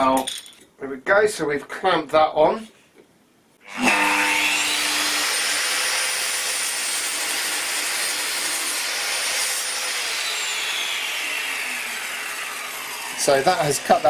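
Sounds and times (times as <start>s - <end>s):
mitre saw cutting timber: 3.6s - 14.0s
saw motor winding down: 3.6s - 14.0s.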